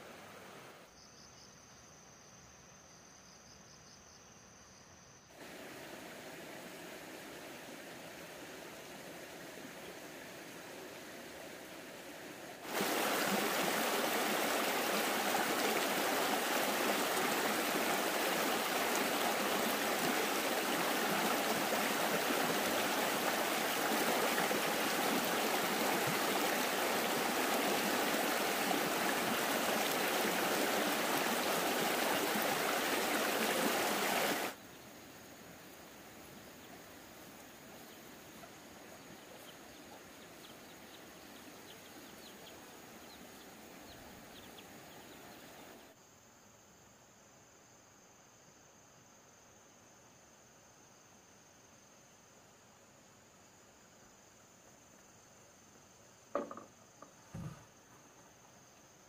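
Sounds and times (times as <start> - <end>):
running water rushing: 0.0 - 0.8, 5.4 - 34.6, 35.4 - 45.9
faint background hiss: 0.0 - 59.0.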